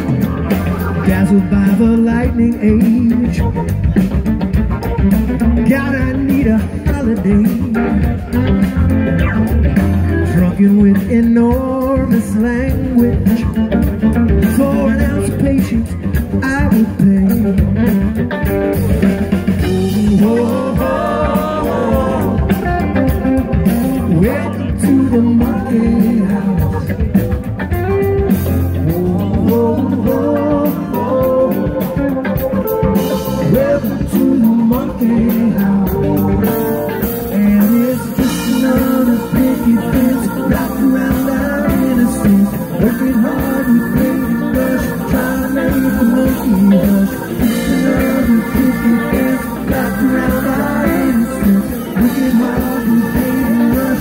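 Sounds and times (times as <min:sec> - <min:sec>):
bass guitar: 0:00.0 - 0:54.0
drums: 0:00.0 - 0:54.0
electric guitars: 0:00.0 - 0:54.0
lead guitar bending pitch: 0:07.2 - 0:11.0, 0:17.5 - 0:54.0.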